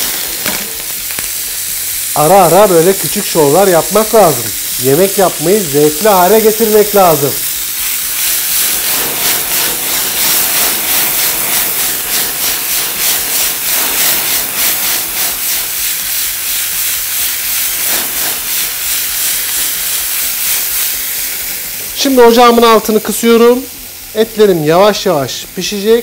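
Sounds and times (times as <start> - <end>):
meat sizzling in a pan: 0.0 - 26.0.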